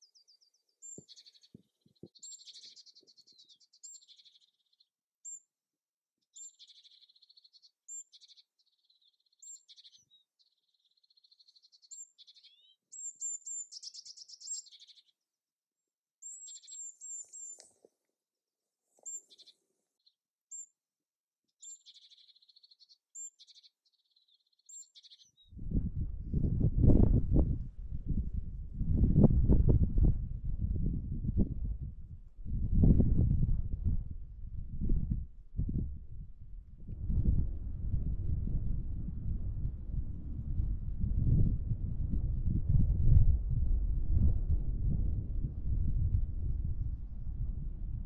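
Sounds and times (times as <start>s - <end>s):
songbird singing trills: 0.0s - 5.4s, 6.3s - 15.2s, 16.2s - 17.8s, 19.0s - 20.7s, 21.6s - 25.5s
faint low clicks: 17.1s - 18.0s.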